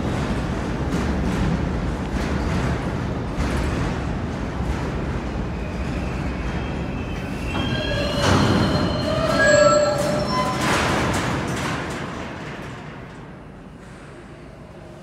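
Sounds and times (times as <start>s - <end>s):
train wheels rumbling and knocking: 0.0s - 15.0s
wheels squealing: 6.5s - 11.6s.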